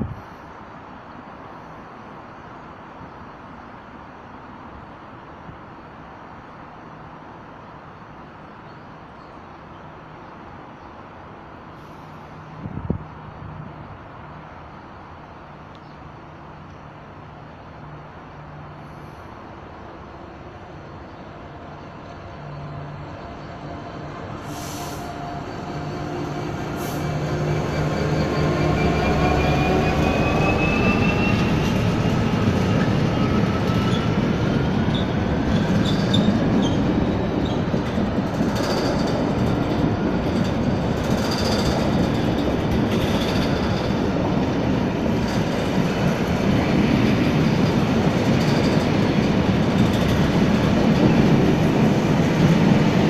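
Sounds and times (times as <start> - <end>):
diesel locomotive engine: 0.0 - 53.0
train wheels rumbling on rails: 12.0 - 53.0
high wheel squeal: 24.4 - 37.8.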